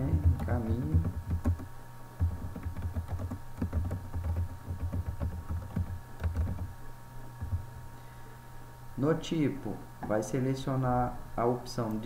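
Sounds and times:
typing on computer keyboard: 0.0s - 6.7s.

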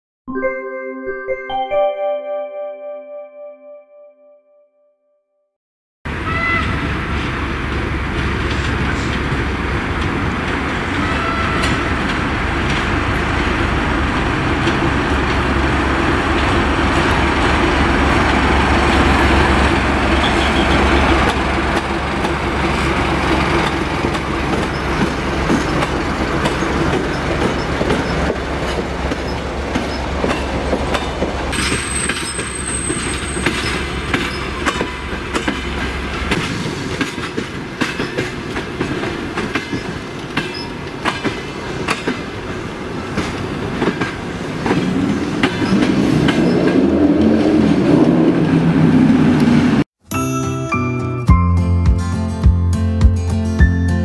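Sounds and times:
diesel locomotive engine rumble: 6.1s - 49.9s
train wheels clicking over rail joints: 7.0s - 49.7s.

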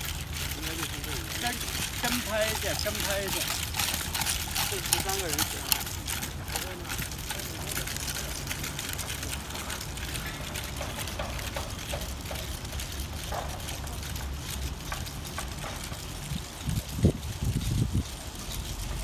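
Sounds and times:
faint footsteps: 0.0s - 19.0s
wind buffeting microphone: 15.6s - 19.0s.

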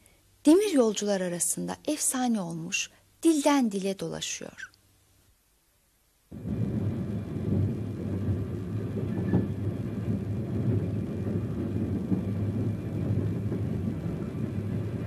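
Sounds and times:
train rumbling on tracks: 6.4s - 15.0s.

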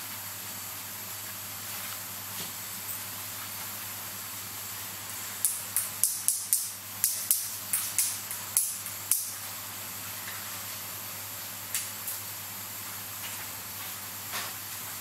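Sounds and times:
room noise hiss and hum: 0.0s - 15.0s
tweezers clicking on metal parts: 5.4s - 9.3s.

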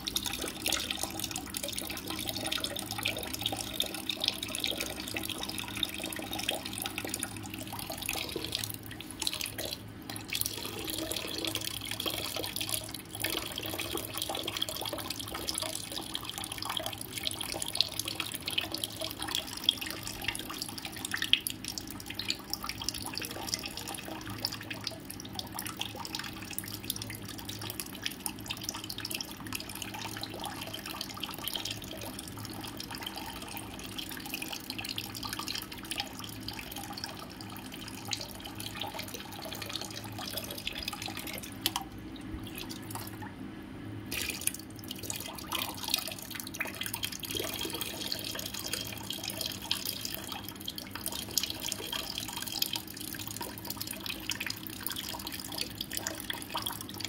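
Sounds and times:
water trickling and dripping: 0.0s - 43.4s, 44.1s - 57.0s.

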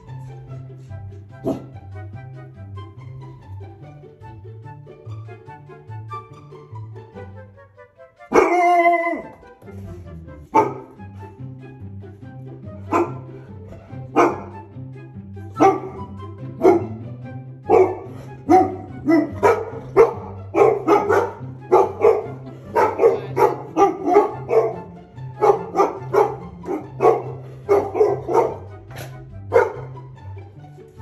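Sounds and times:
background music with bass line: 0.0s - 31.0s
dogs barking loudly: 1.4s - 1.8s, 8.3s - 9.3s, 10.5s - 11.0s, 12.8s - 14.7s, 15.5s - 17.0s, 17.6s - 30.2s.

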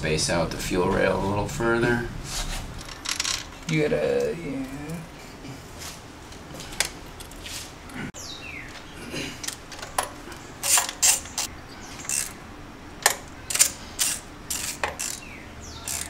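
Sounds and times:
metallic clicks of hand tools: 13.0s - 15.2s.

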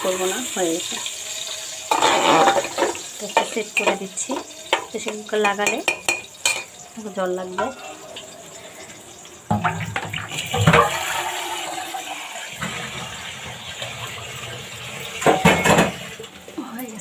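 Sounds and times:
water running from a tap: 0.0s - 17.0s
pots and dishes knocking: 1.9s - 6.8s, 7.6s - 8.0s, 9.5s - 11.2s, 15.1s - 16.2s.

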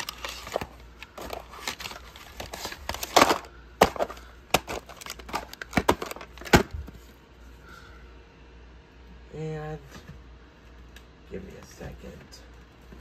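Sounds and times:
crinkly rattling: 0.0s - 6.7s
plastic video case clicking: 0.0s - 6.7s.

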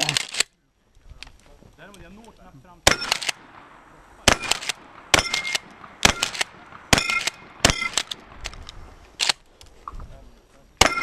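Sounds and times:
shotgun shots: 2.8s - 9.4s, 10.8s - 11.0s.

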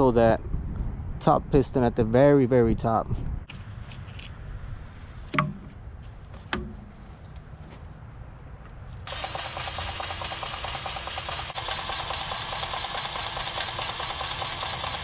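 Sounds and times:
grease gun motor pumping: 9.1s - 15.0s
sharp clicks: 9.1s - 15.0s.

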